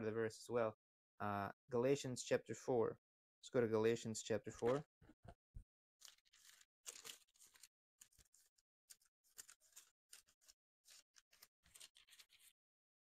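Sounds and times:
thin pages turning: 4.6s - 4.8s, 6.0s - 12.6s.

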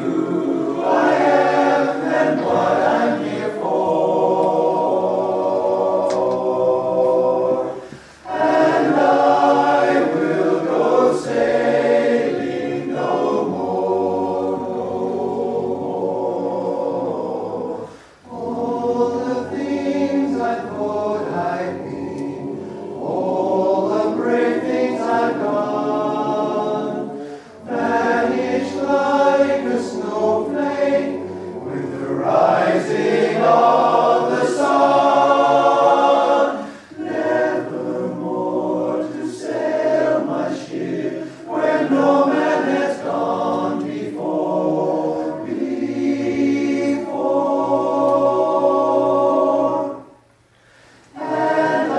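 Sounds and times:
men's chorus singing a cappella: 0.0s - 51.9s.

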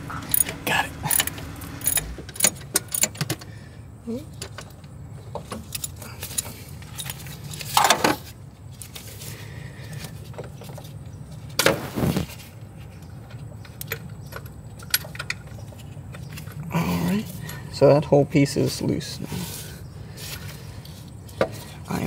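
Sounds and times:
socket wrench and metal parts rattling: 0.1s - 3.4s, 5.4s - 8.0s, 13.2s - 16.6s.

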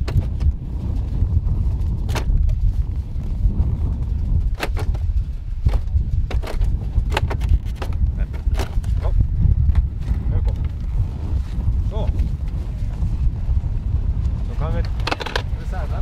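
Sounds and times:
wind rumbling on microphone: 0.0s - 16.0s
plastic clicks and knocks: 4.5s - 5.0s, 5.6s - 9.0s, 14.8s - 15.5s.

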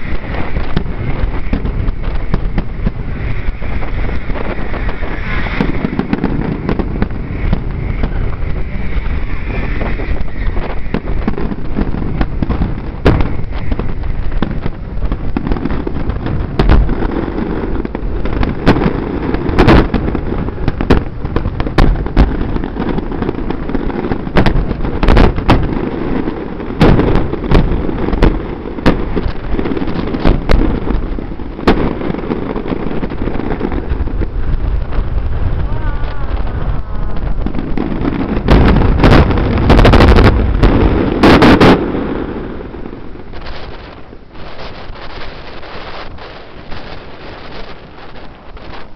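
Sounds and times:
low rumble: 0.0s - 25.5s, 33.1s - 41.2s
fireworks bangs: 0.0s - 48.9s.

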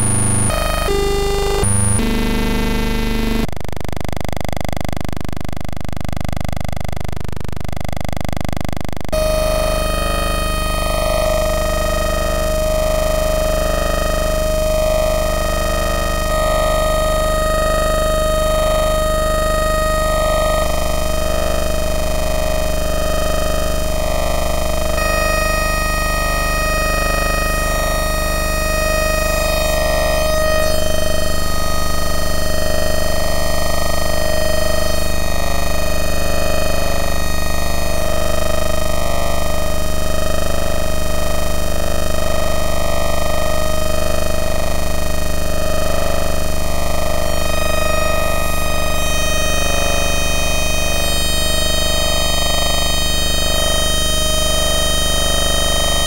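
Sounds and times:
synthesizer drone: 0.0s - 2.1s.

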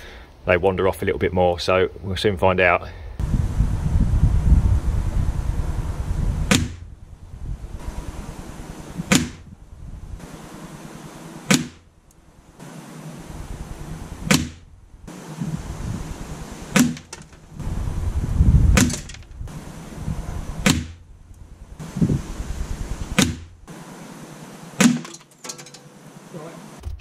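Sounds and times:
gusty wind rumble: 3.0s - 10.9s, 11.9s - 23.7s
pellets cracking into target: 16.7s - 17.5s, 18.8s - 19.4s, 24.8s - 25.8s.

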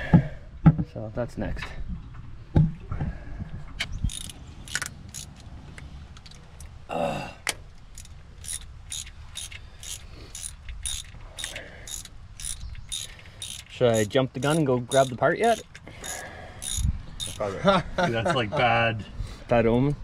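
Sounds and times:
ratchet wrench clicking: 4.1s - 5.5s, 7.9s - 17.4s.

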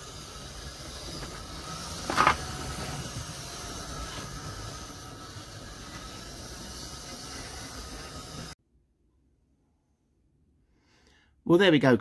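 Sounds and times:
model train motor humming: 0.0s - 8.6s.

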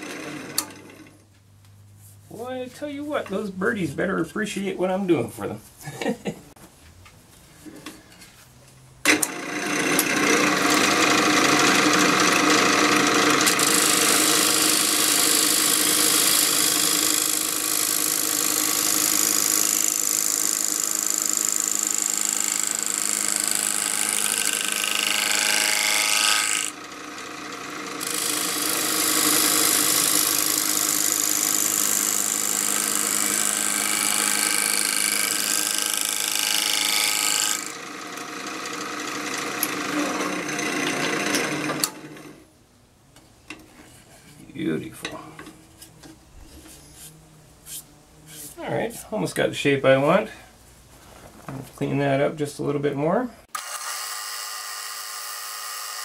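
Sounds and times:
gouge shaving wood on lathe: 0.0s - 1.1s, 9.1s - 42.4s
lathe motor humming: 0.0s - 1.2s, 9.1s - 42.4s.

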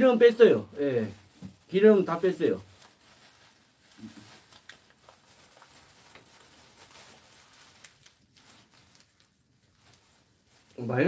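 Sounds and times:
gloved hands rustling and ticking: 1.0s - 11.0s.

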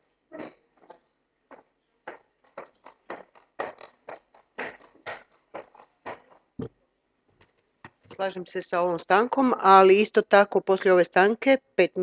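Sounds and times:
footsteps on wooden floor: 0.8s - 6.4s.

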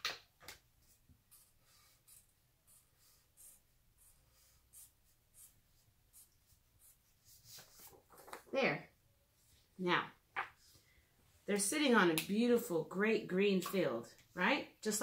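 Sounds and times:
marker drawing on paper: 0.8s - 7.9s.

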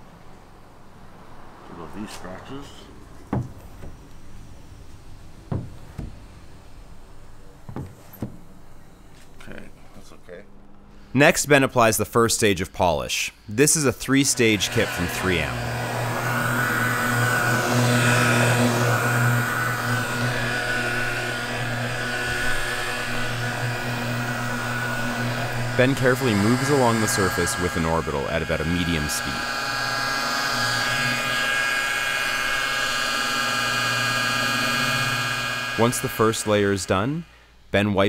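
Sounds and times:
dull knocks: 3.3s - 4.0s, 5.5s - 6.2s
electric polisher whining: 14.1s - 37.4s.

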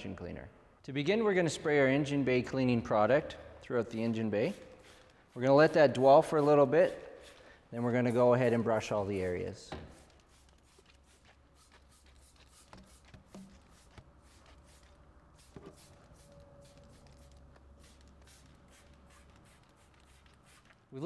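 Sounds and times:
spray bottle squirts: 4.4s - 7.6s, 8.8s - 20.9s.

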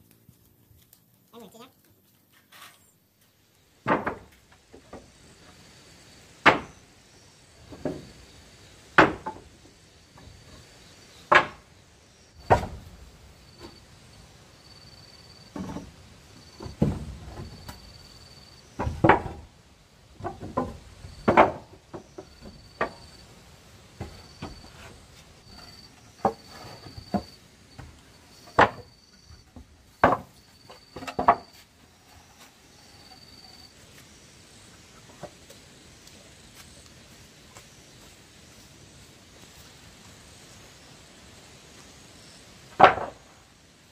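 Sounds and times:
wooden planks knocking: 3.8s - 5.1s, 9.0s - 9.5s, 11.3s - 11.7s, 12.4s - 12.8s, 16.6s - 17.8s, 18.8s - 19.5s, 20.2s - 23.1s, 24.0s - 28.9s, 29.5s - 31.6s, 42.8s - 43.4s.

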